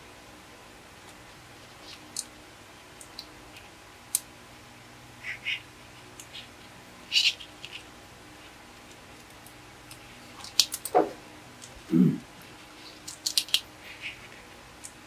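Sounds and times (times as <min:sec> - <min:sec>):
plastic pieces clicking together: 0:09.2 - 0:11.0, 0:12.8 - 0:15.0.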